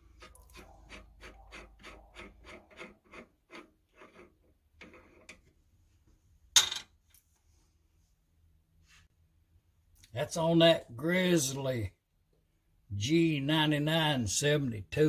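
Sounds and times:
metal-on-metal rasping: 0.0 - 5.4.

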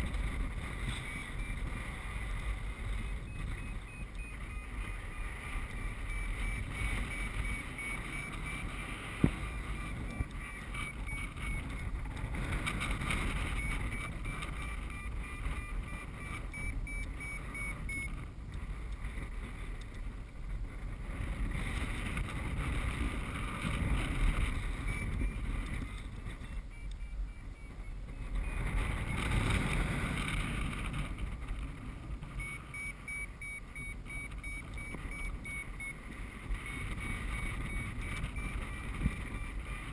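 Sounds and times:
wind rushing over microphone: 0.0 - 39.9
short repeated beeps: 0.7 - 12.0, 12.6 - 18.2, 24.3 - 29.5, 32.4 - 39.9.

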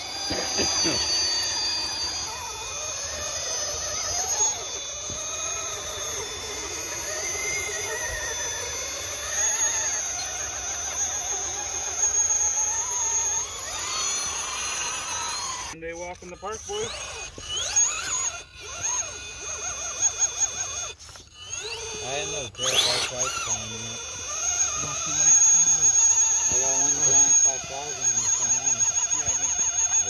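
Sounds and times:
toy car electric motor whining: 0.0 - 30.0.

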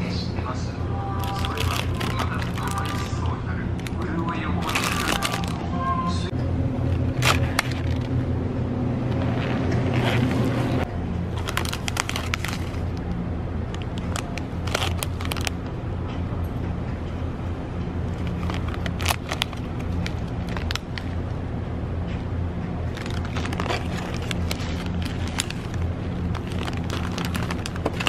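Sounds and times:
steady low hum: 0.0 - 28.0
plastic packaging crinkling: 1.2 - 5.7, 7.0 - 8.1, 11.3 - 13.0, 13.7 - 15.6, 18.1 - 21.2, 22.9 - 28.0.

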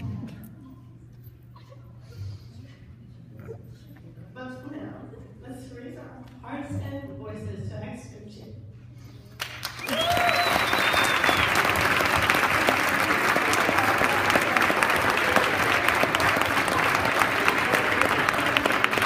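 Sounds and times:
audience applauding: 9.4 - 19.0.

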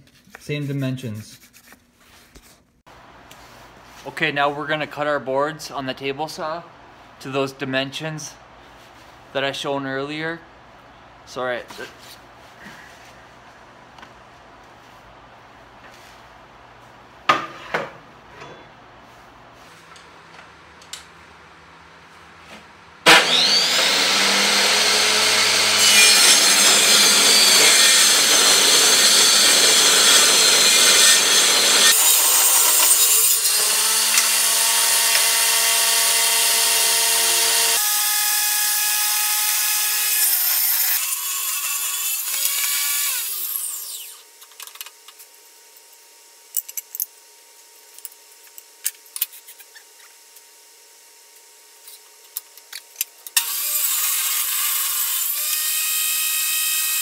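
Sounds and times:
table saw cutting wood: 23.0 - 44.4, 53.3 - 57.0
saw blade winding down: 23.1 - 44.3, 53.4 - 57.0.

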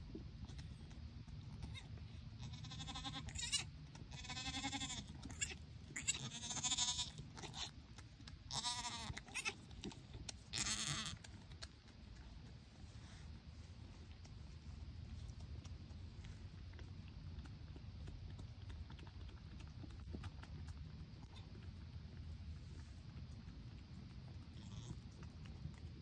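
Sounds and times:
goat bleating: 1.6 - 7.7, 8.5 - 9.7, 10.5 - 11.2, 24.6 - 25.0.

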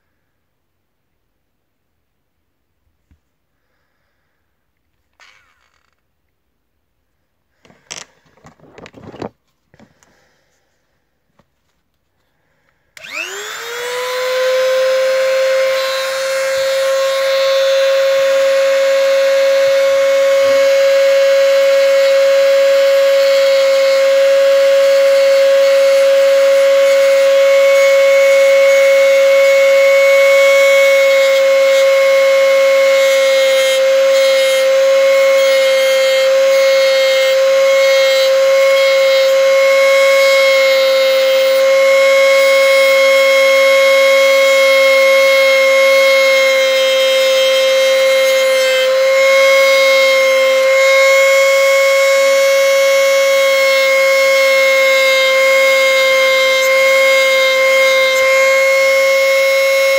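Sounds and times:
hair trimmer whining: 5.2 - 6.0, 13.0 - 59.9.

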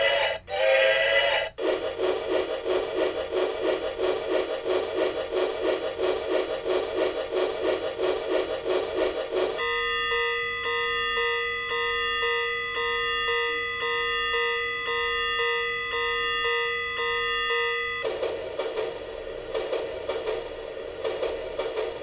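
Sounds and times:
noisy pulsing sound: 0.0 - 10.4, 18.0 - 22.0.

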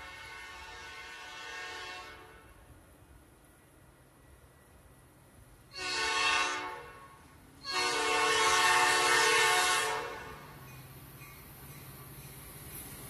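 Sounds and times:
locomotive air horn blasts: 0.0 - 2.6, 5.7 - 10.5
freight train rumble: 0.0 - 13.0.

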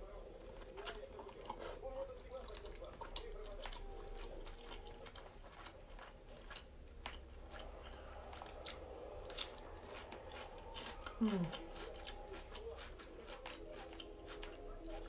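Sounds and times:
person chewing food: 0.0 - 15.0.

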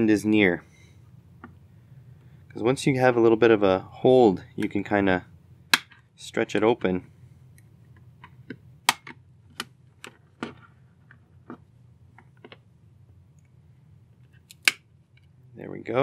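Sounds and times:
plastic case clips snapping: 8.9 - 10.6, 14.4 - 14.8.

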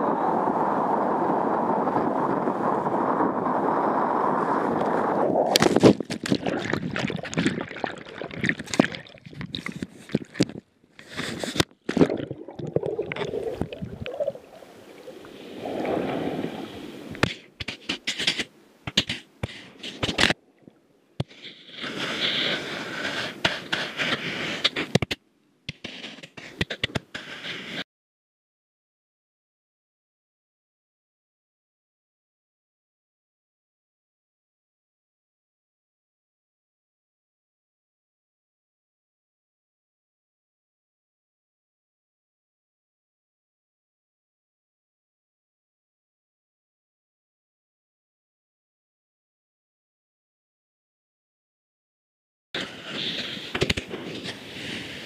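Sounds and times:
wind on microphone: 0.0 - 10.6, 12.7 - 17.3
underwater sloshing and gurgling: 3.8 - 17.2
knocks and scrapes: 5.5 - 12.2, 17.2 - 20.4, 21.2 - 27.8.

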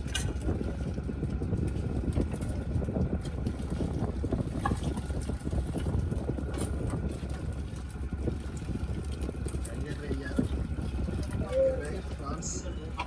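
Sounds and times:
boat engine droning: 0.0 - 13.0.

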